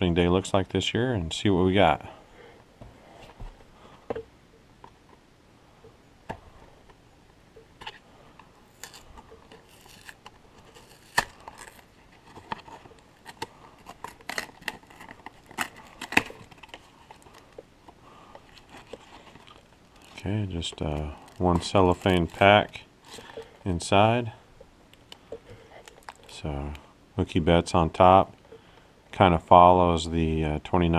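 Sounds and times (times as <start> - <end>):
cardboard tearing: 8.7 - 17.4.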